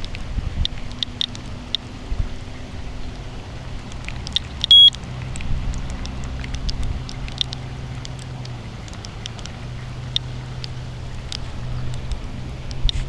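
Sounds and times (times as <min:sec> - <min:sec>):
geiger counter clicking: 0:00.0 - 0:01.9, 0:03.8 - 0:13.0
low steady hum: 0:00.0 - 0:13.0
short high beep: 0:04.7 - 0:04.9.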